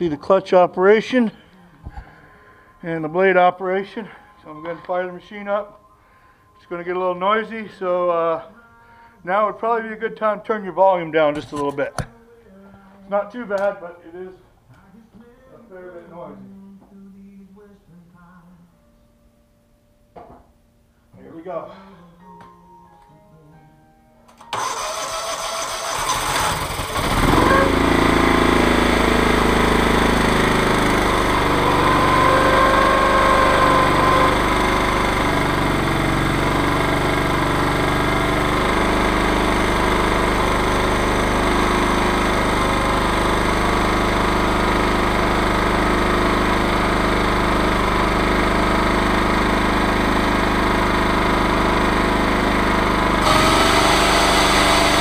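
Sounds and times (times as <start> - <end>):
chainsaw engine running: 24.6 - 55.0.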